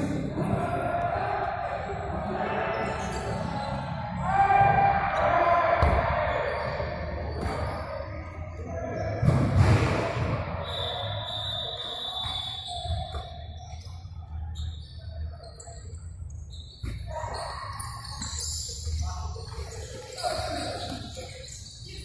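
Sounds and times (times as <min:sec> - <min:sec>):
ball kicked and bouncing indoors: 0:05.8 - 0:06.3, 0:07.3 - 0:07.9, 0:12.2 - 0:14.0, 0:18.0 - 0:20.0
loud thump: 0:09.2 - 0:10.4.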